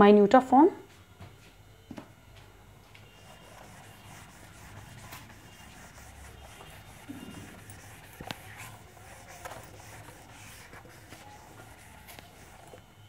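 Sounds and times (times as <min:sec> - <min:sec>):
eraser rubbing on whiteboard: 0:03.2 - 0:12.8.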